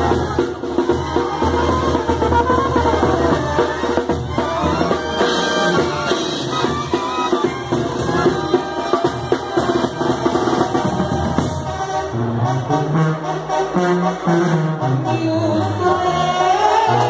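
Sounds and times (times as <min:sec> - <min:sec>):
drum strokes: 0:00.0 - 0:12.0
brass band playing: 0:00.0 - 0:17.0
low brass bass line: 0:00.0 - 0:17.0.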